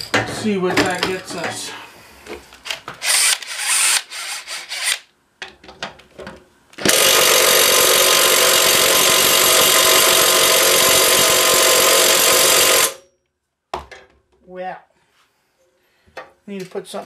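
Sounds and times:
cordless drill running: 0:03.0 - 0:05.0, 0:06.8 - 0:13.0.

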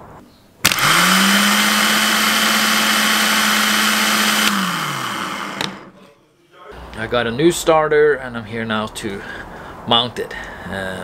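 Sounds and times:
starter motor whirring: 0:00.6 - 0:05.9.

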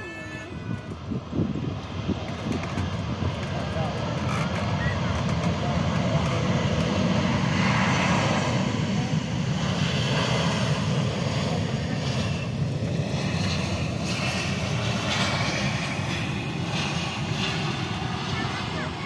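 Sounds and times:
wind on microphone: 0:00.0 - 0:07.4
jet engines rumbling: 0:00.0 - 0:19.0.

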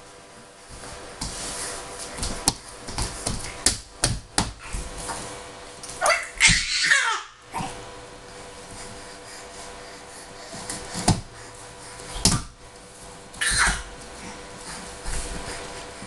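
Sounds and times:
palms slapping wooden floor: 0:00.7 - 0:05.2, 0:12.1 - 0:12.6.

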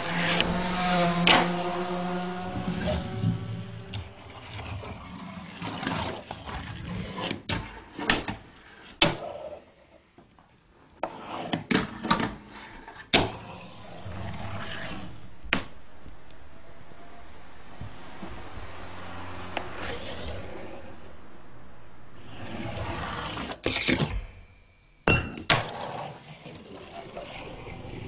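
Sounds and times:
low rumbling background: 0:00.0 - 0:05.5, 0:13.6 - 0:23.6.

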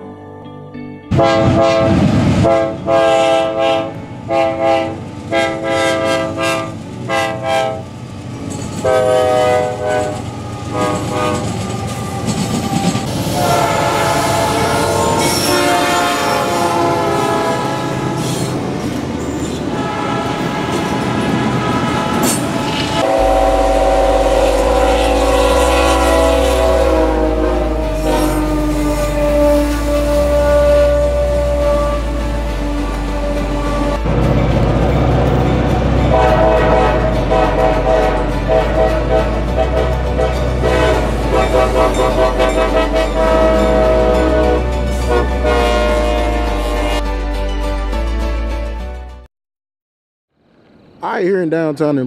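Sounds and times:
locomotive air horn blasts: 0:01.1 - 0:07.9, 0:08.8 - 0:12.4, 0:13.1 - 0:18.5, 0:19.7 - 0:34.1, 0:36.0 - 0:47.1
deep locomotive engine rumble: 0:01.1 - 0:48.7
train rumble and wheel clatter: 0:01.2 - 0:47.0.

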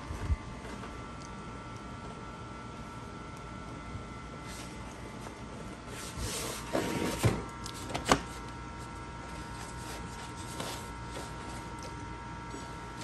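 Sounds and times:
faint high hum: 0:00.0 - 0:13.0
paper scraping and rustling: 0:05.7 - 0:08.4, 0:09.3 - 0:11.9.

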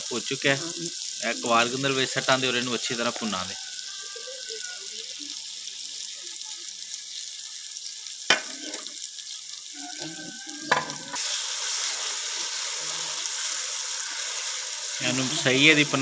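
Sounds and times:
food sizzling in a pan: 0:00.0 - 0:16.0
wooden spatula knocking on pan: 0:10.7 - 0:11.0.

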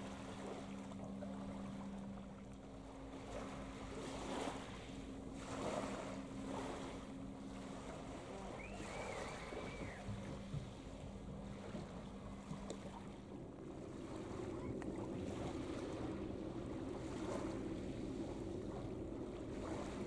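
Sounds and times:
low drone of port machinery: 0:00.0 - 0:20.0
wind on microphone: 0:03.3 - 0:20.0
bird calling: 0:08.4 - 0:10.5.

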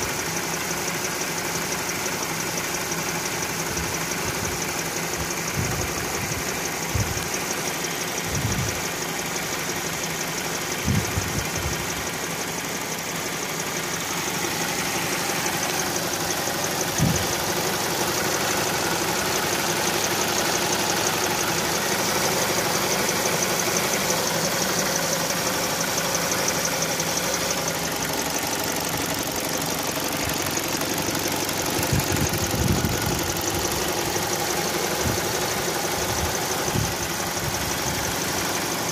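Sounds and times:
car engine idling: 0:00.0 - 0:38.9
fast even ticking: 0:13.4 - 0:38.8.

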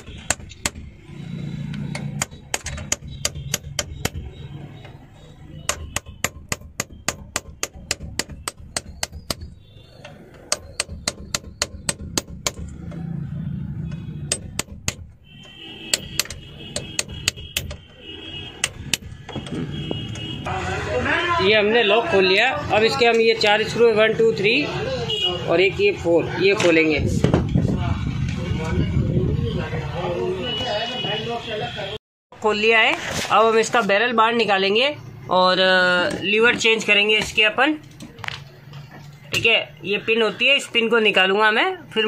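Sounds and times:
hammer tapping on metal: 0:00.0 - 0:01.0, 0:01.7 - 0:13.1, 0:14.2 - 0:20.3.

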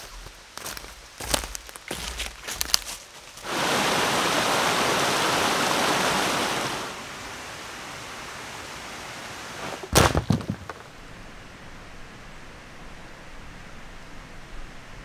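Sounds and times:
stream running over rocks: 0:00.0 - 0:11.4
heavy thumps: 0:09.8 - 0:10.9.

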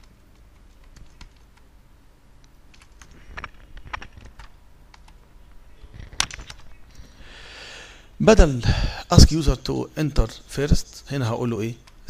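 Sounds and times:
keyboard and mouse clicks: 0:00.0 - 0:01.7, 0:02.4 - 0:05.2, 0:05.9 - 0:07.0.

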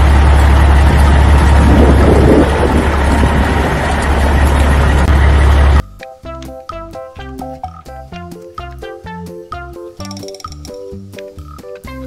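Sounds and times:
concrete mixer truck rumble: 0:00.0 - 0:05.8.

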